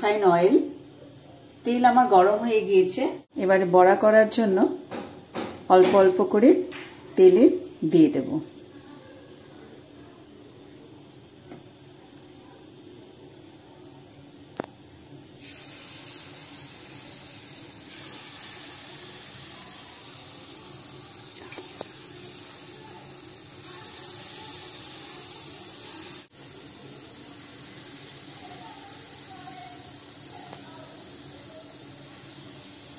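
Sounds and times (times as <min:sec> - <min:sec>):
batter sizzling in hot oil: 0:15.4 - 0:32.9.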